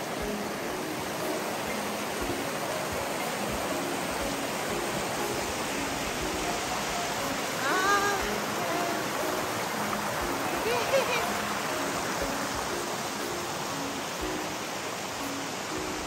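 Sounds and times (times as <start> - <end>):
river rushing over stones: 0.0 - 16.0.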